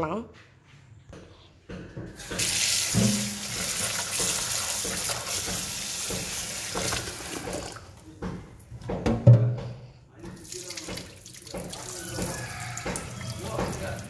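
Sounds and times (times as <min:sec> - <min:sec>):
tap water running into pot: 0:02.2 - 0:08.0, 0:10.3 - 0:14.0.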